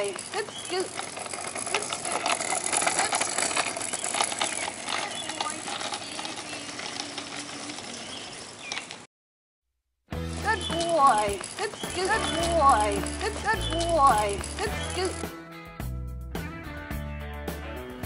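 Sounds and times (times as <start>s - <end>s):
scooter wheels rolling on asphalt: 0.0s - 9.1s, 10.2s - 15.3s.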